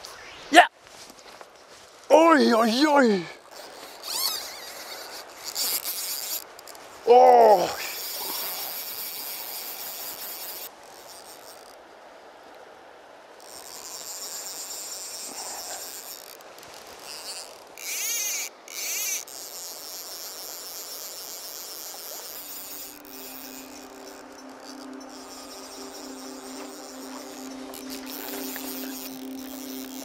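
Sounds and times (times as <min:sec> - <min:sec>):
high-pitched insect chorus: 0:02.5 - 0:11.7, 0:18.7 - 0:30.0
close insect chirring: 0:02.5 - 0:11.8, 0:13.4 - 0:30.0.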